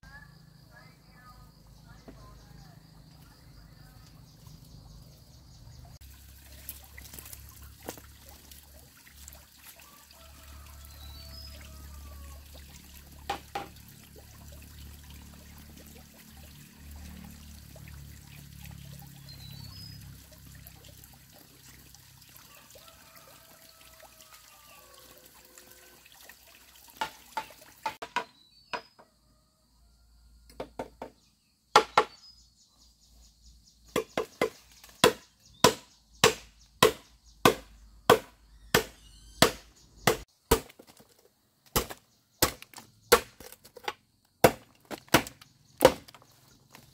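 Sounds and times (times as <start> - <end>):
machete chopping bamboo: 31.8 - 32.2, 33.9 - 46.3.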